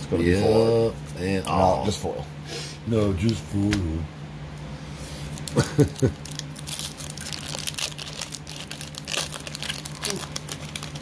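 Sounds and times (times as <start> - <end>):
foil wrapper crinkling and tearing: 5.3 - 11.0.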